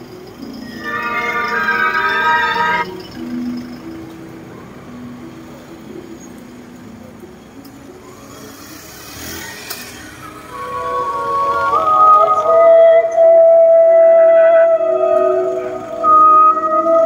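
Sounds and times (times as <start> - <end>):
cars driving slowly past: 0.0 - 17.0
loud musical chord: 0.5 - 3.6.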